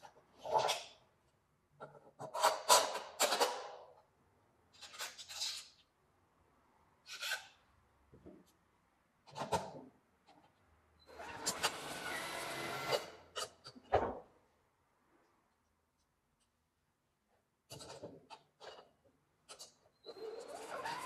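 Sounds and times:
metal parts rubbing and scraping: 4.8 - 5.8.

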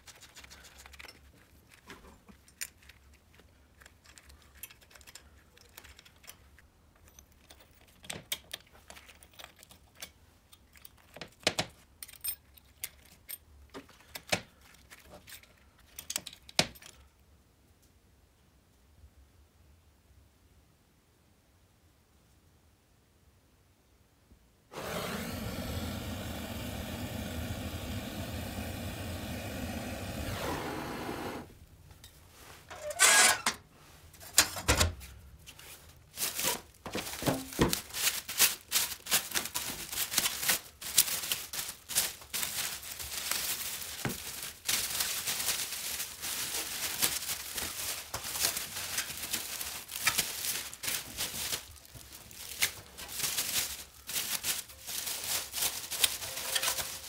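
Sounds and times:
plastic wrap crinkling and tearing: 35.6 - 57.0.

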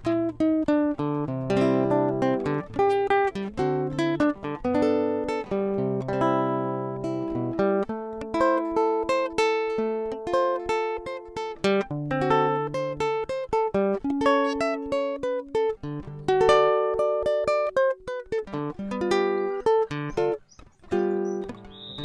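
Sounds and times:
acoustic guitar plucked notes: 0.0 - 22.0.

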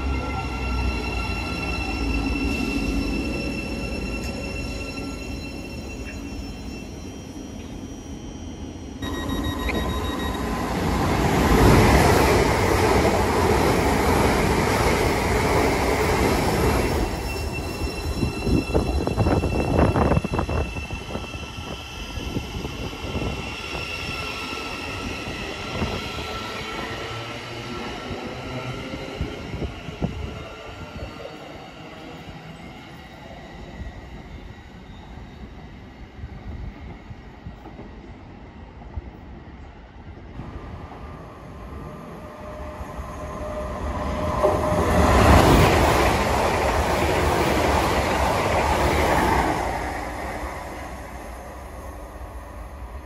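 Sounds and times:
steady high tones: 0.0 - 13.1
passenger train passing at speed: 0.0 - 53.0.

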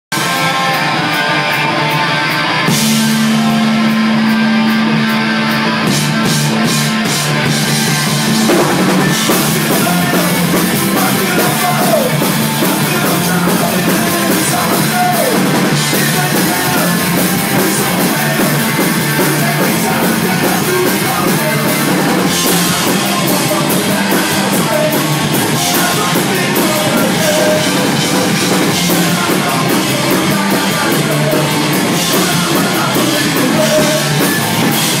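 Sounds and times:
bass guitar: 0.0 - 35.0
distorted electric guitar: 0.1 - 35.0
drums and cymbals: 0.1 - 35.0
shouted vocals: 9.1 - 35.0.

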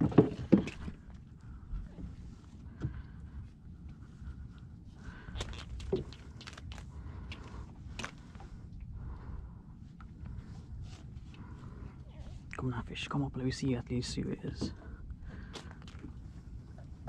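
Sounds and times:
steady low rumble: 0.0 - 17.0
hands and line clicking and scraping: 3.8 - 8.6.

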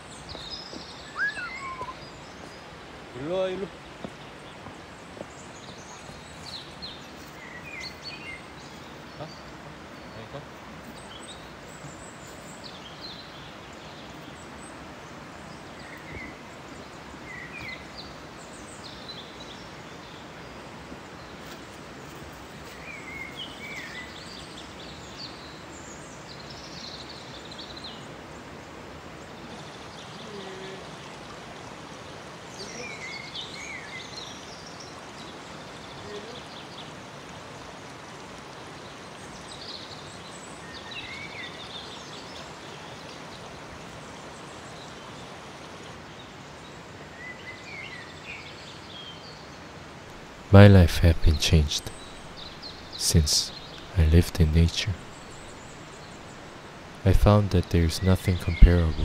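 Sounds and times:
birds chirping: 0.0 - 20.5, 46.2 - 59.0
stream running over rocks: 0.0 - 51.0, 54.9 - 57.0.

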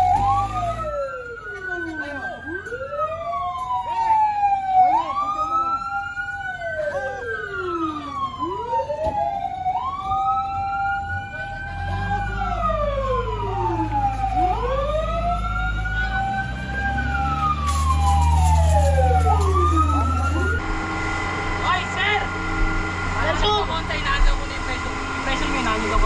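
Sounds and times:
fire truck sirens wailing: 0.0 - 26.0
heavy engine drone: 0.0 - 26.0.

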